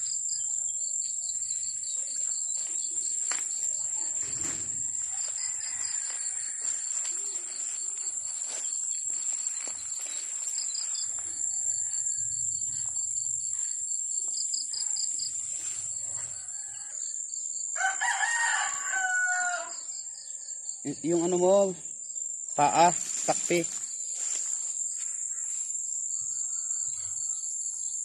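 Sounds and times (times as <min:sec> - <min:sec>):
insect drone: 0:00.0 - 0:28.0
rapid pulsing insect chirp: 0:00.0 - 0:28.0
rooster crowing: 0:03.7 - 0:07.8, 0:11.1 - 0:12.8, 0:16.0 - 0:20.8, 0:26.2 - 0:27.5.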